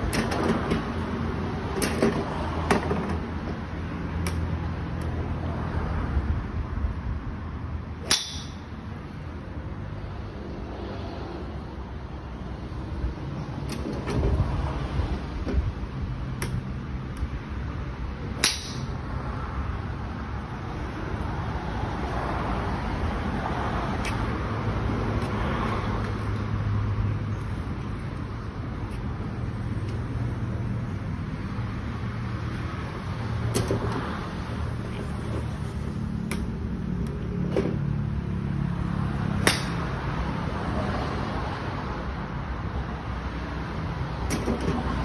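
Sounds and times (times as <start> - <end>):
golf clubs striking balls: 0.0 - 1.0, 1.7 - 3.6, 4.2 - 5.2, 8.0 - 9.2, 15.4 - 17.4, 18.2 - 19.2, 33.5 - 34.0, 34.9 - 37.8, 39.4 - 40.0, 44.2 - 44.9.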